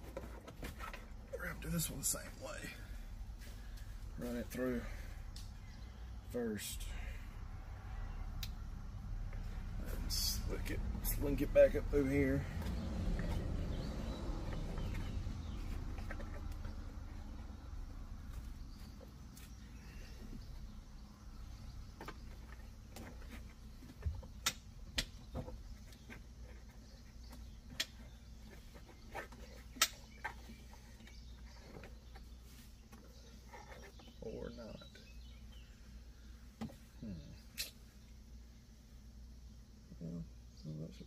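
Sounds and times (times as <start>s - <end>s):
low steady hum: 0.0s - 41.0s.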